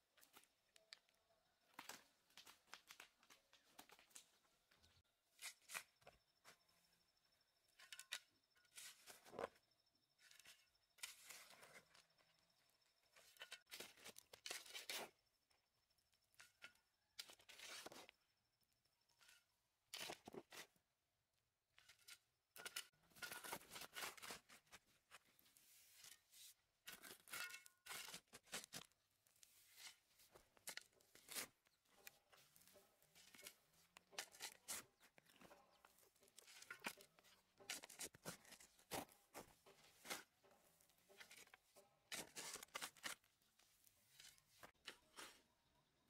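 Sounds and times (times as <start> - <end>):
hoe scraping stony soil: 7.8 - 12.4, 13.0 - 15.2, 16.4 - 18.2, 21.8 - 45.6
soil clods falling: 26.8 - 45.4.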